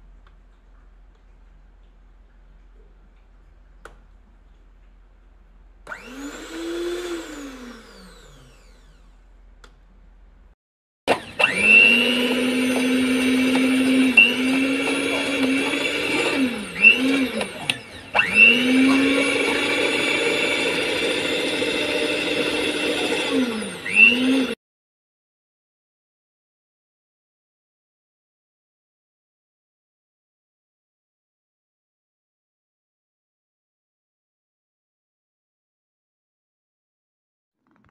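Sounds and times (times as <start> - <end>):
stand mixer motor whine: 5.9 - 9.2, 11.1 - 24.6.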